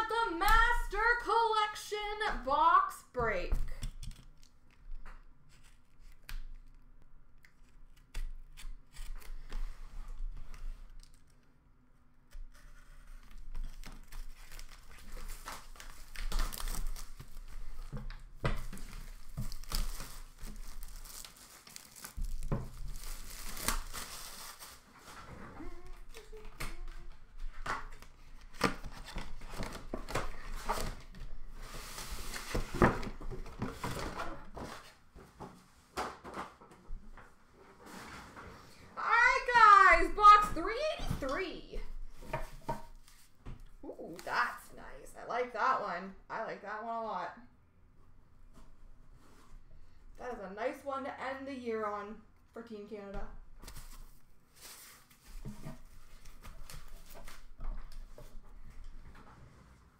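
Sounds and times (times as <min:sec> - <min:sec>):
shrink-wrap tearing and crinkling: 0:12.5 - 0:17.9, 0:18.7 - 0:27.1.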